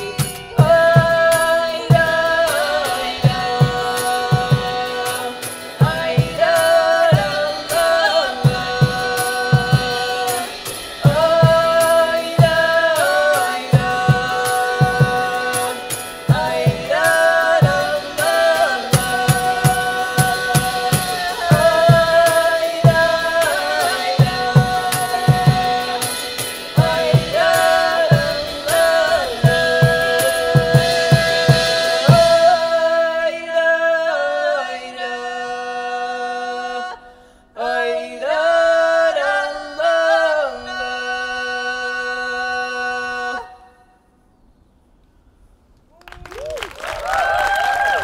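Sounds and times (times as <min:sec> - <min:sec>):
drum strokes: 0:00.0 - 0:33.2
person singing: 0:00.0 - 0:44.0
applause: 0:45.9 - 0:48.0.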